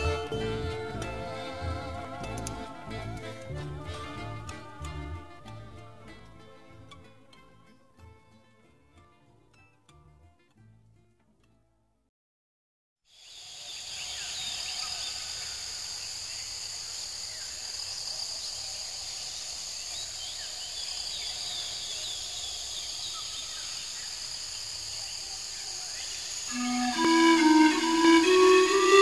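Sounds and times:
steady high hiss: 0:13.2 - 0:29.0.

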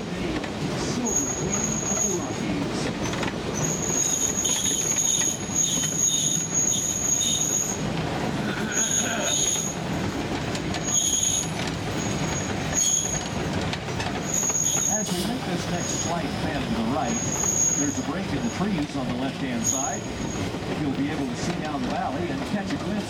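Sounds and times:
steel wheels rumbling on rails: 0:00.0 - 0:23.0
wheel flange squeal: 0:03.5 - 0:07.8, 0:10.8 - 0:13.3, 0:14.2 - 0:18.6.

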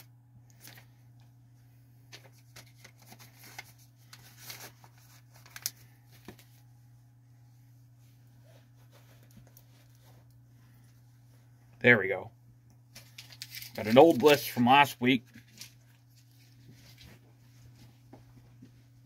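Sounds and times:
paper and wallet rustling: 0:02.1 - 0:06.7, 0:12.9 - 0:14.5.

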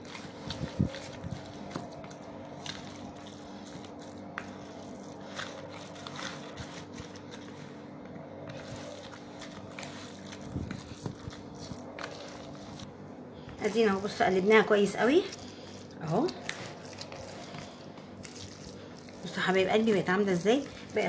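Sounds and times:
spatula scraping plastic bowl: 0:00.0 - 0:07.8, 0:08.4 - 0:12.9, 0:15.0 - 0:21.0
meat mixture squishing: 0:00.0 - 0:21.0.

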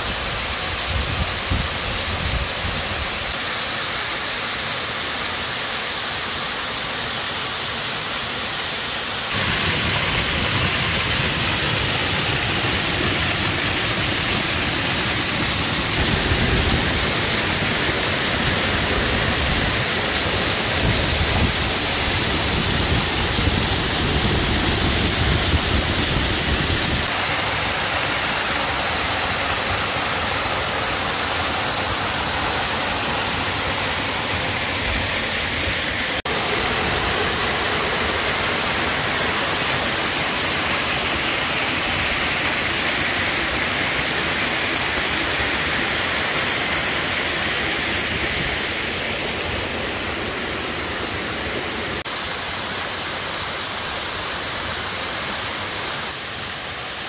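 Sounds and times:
waterfall splashing onto rocks: 0:00.0 - 0:57.0.

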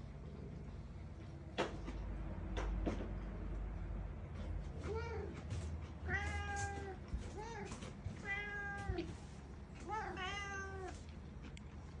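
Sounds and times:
cat meowing: 0:06.0 - 0:09.1, 0:09.8 - 0:11.0.

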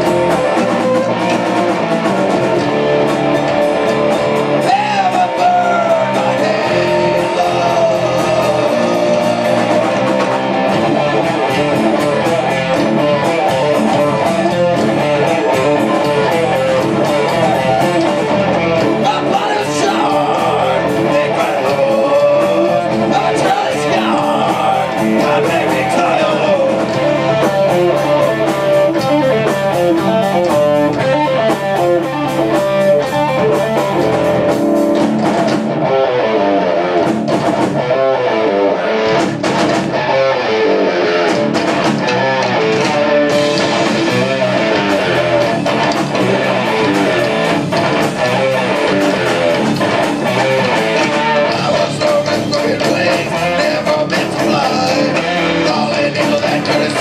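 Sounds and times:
bass guitar: 0:00.0 - 0:57.0
distorted electric guitar: 0:00.0 - 0:57.0
drum kit: 0:00.0 - 0:57.0
person singing: 0:04.5 - 0:34.5, 0:42.8 - 0:57.0.

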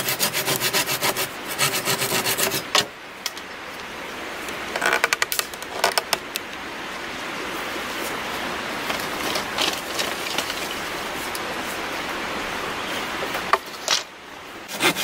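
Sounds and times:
sharp wooden clicks and knocks: 0:04.7 - 0:06.4.

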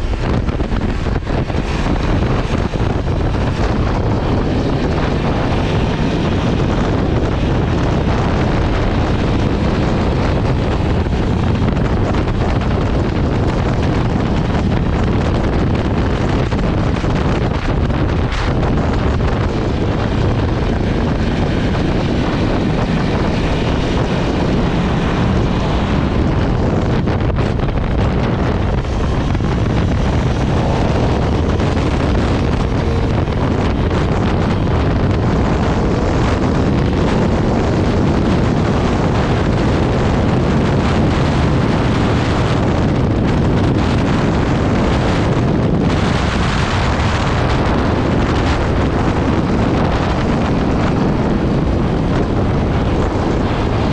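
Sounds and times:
motorcycle engine revving: 0:00.0 - 0:53.9
wind buffeting microphone: 0:00.0 - 0:53.9.

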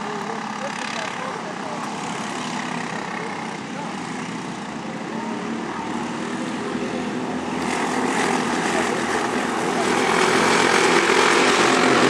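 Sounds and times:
kart engines buzzing: 0:00.0 - 0:12.0.

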